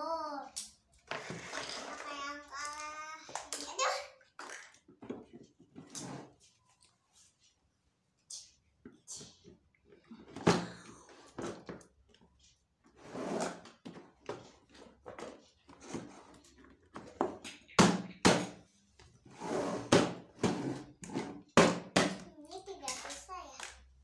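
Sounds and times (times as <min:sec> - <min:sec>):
plastic toy parts knocking: 0:21.6 - 0:23.8.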